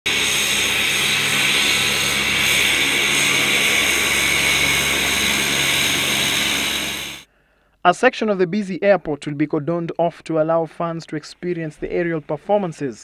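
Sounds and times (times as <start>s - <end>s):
turboprop engines whining: 0.0s - 7.3s.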